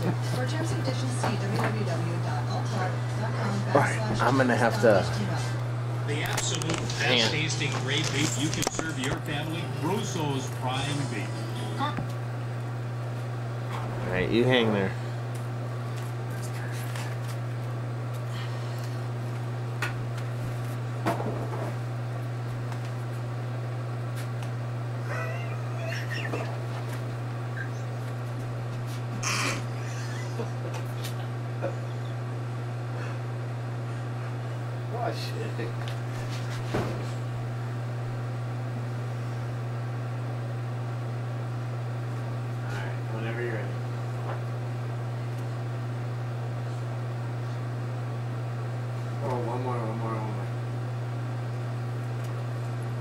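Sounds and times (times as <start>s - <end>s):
low room hum: 0.0s - 53.0s.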